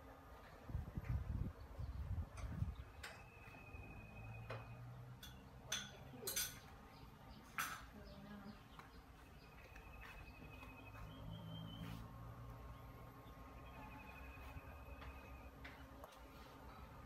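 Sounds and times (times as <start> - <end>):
dishes and utensils clinking: 5.2 - 6.7.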